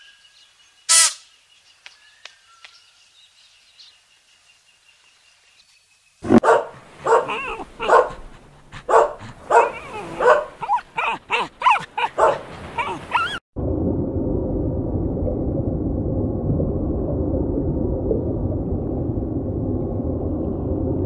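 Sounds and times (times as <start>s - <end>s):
faint outdoor sounds: 0.0s - 13.4s
puppy barking: 6.3s - 13.4s.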